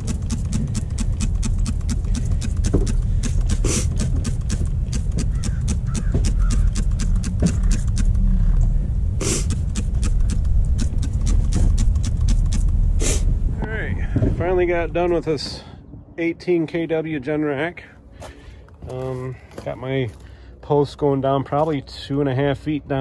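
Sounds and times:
spray bottle hissing: 0.0 - 8.2, 9.2 - 13.3
fast regular ticking: 0.0 - 13.2
low rumble: 0.0 - 20.2.

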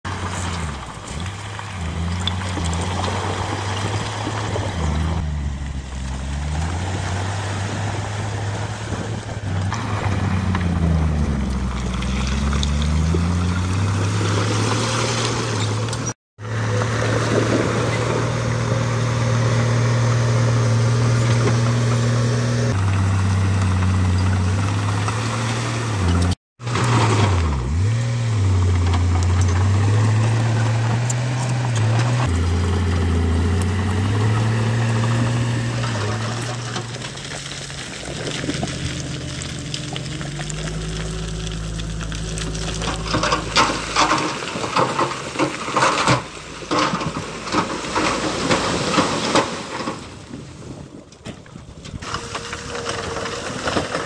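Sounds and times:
heavy diesel engine revving: 0.1 - 37.2.

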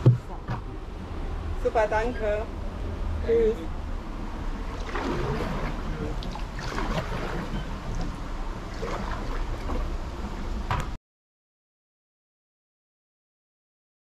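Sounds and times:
canoe paddles dipping in water: 4.6 - 10.7.

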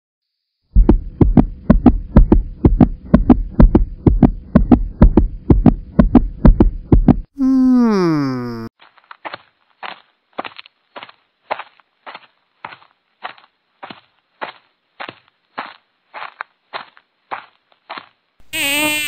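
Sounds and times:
deep repeating drum thumps: 0.7 - 7.3.

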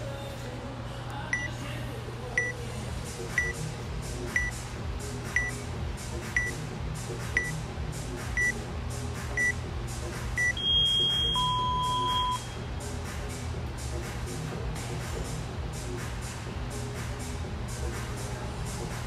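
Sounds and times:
short high beeps: 10.4 - 12.6.

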